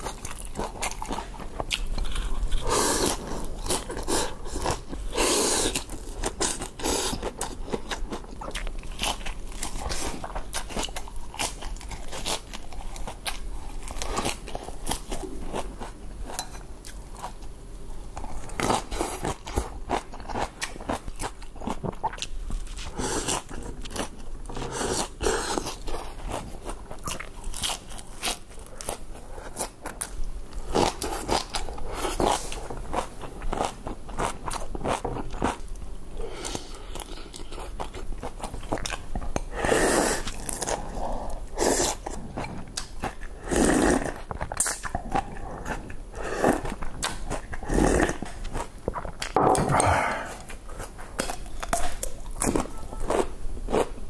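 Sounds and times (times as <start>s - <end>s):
eating noodles: 0.0s - 17.4s, 36.2s - 54.0s
lettuce crunching and chewing: 0.0s - 17.5s, 18.2s - 54.0s
drinking broth: 49.4s - 50.6s.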